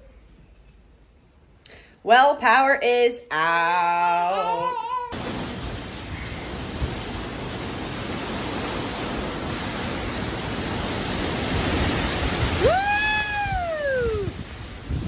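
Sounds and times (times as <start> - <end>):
heavy rain: 5.1 - 15.0
hurricane wind gusts: 5.1 - 15.0.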